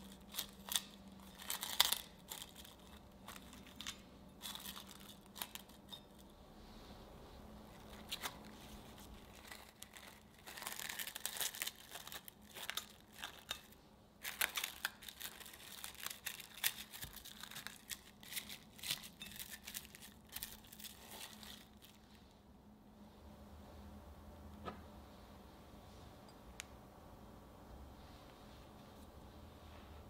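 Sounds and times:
plastic wrap crinkling: 0.0 - 6.4, 7.7 - 22.3.

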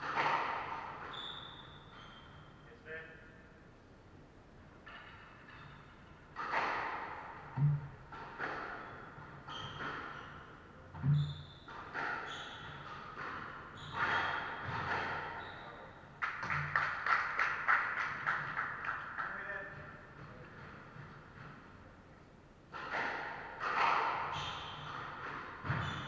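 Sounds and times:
squash ball hitting walls: 0.0 - 1.7, 6.3 - 15.6, 22.7 - 26.0
spectators clapping: 16.2 - 19.7.

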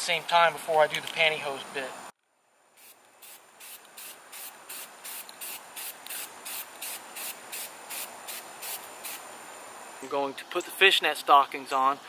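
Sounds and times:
spray paint hissing bursts: 2.8 - 10.1.

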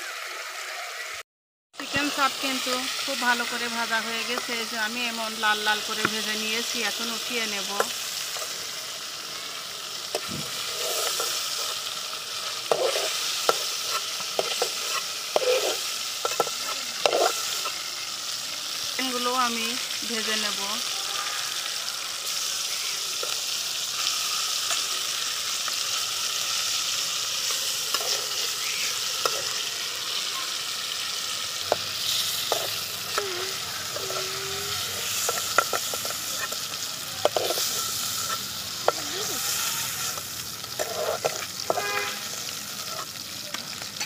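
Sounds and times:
chicken frying in hot oil: 0.0 - 1.2, 1.8 - 44.0
utensil clinking and scraping pan: 12.6 - 17.8, 35.0 - 42.0.

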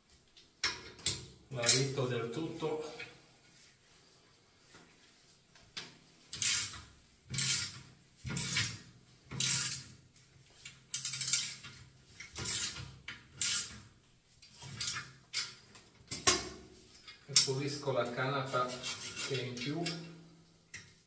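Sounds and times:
ratchet wrench clicking: 9.4 - 9.8, 11.0 - 11.6, 13.4 - 13.8.

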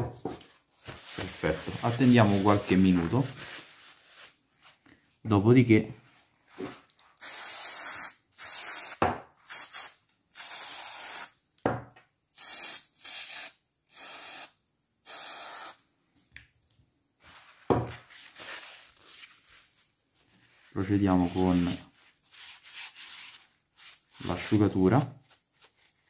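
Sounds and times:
aerosol spray hissing: 7.2 - 11.3, 12.4 - 15.8
knock: 9.0 - 9.2.

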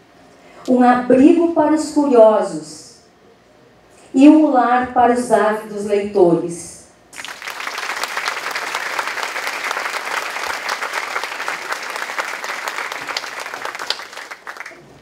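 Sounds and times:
audience applause: 7.2 - 15.0.

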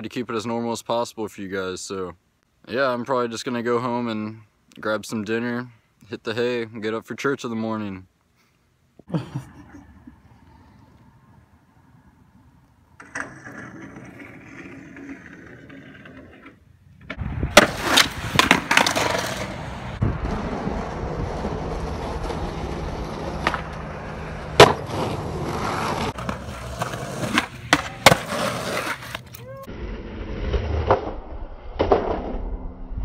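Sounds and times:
skateboard wheels rolling on pavement: 10.9 - 31.0
skateboard clacking: 13.0 - 19.6, 23.3 - 29.4.

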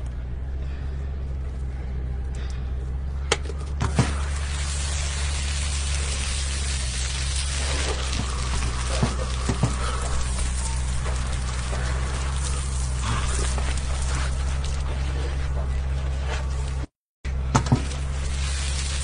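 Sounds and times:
steady low hum: 0.0 - 19.0
shower water spraying and splashing: 3.8 - 15.1, 17.7 - 19.0.

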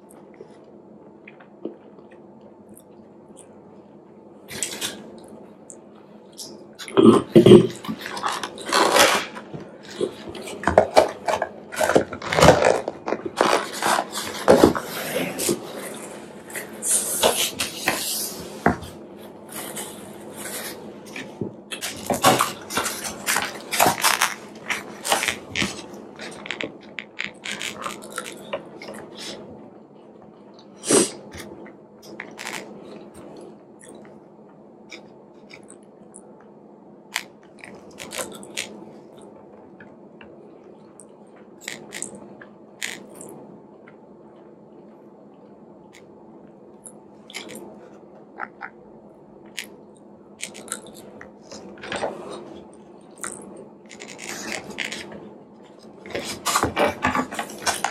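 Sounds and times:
chewing: 37.2 - 39.3, 50.4 - 52.6.

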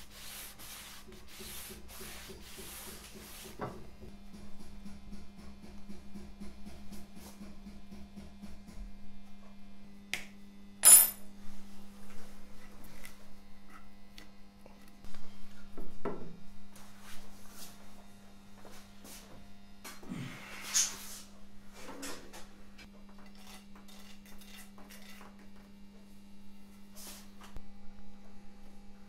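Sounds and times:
sharp metallic clink: 10.8 - 11.2.

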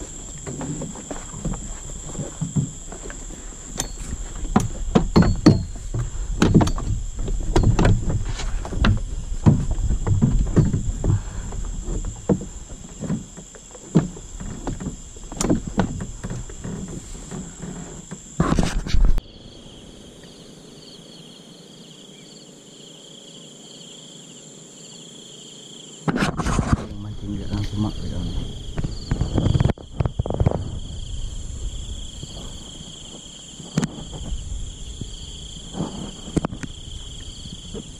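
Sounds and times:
gear knocking in metal boat: 0.0 - 18.4
insects chirring: 0.0 - 37.9.

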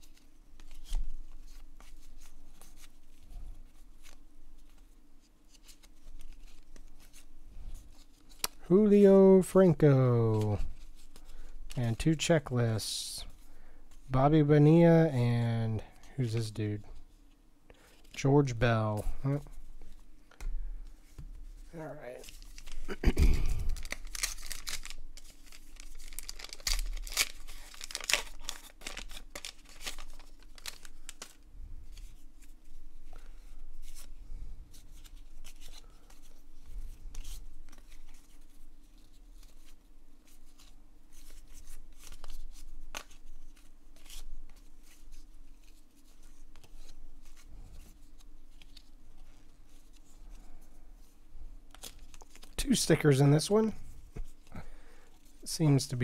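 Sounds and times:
foil wrapper crinkling and tearing: 22.2 - 31.4, 51.7 - 52.8.

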